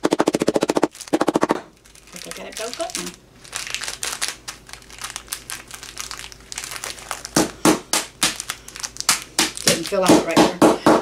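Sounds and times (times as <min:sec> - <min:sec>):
wrappers crinkling: 0:00.9 - 0:10.1
wooden mallet pounding: 0:09.4 - 0:11.0.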